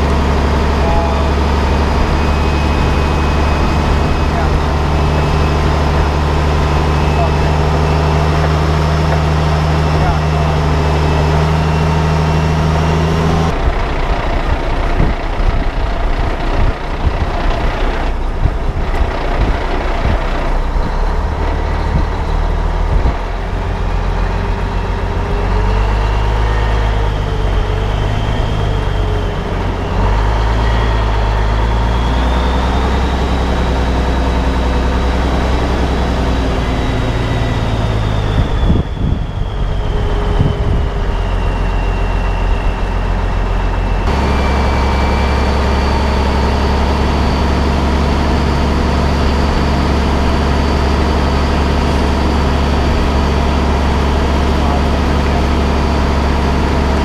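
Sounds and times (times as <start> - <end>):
truck diesel engine running: 0.0 - 57.0
faint high whine: 36.3 - 57.0.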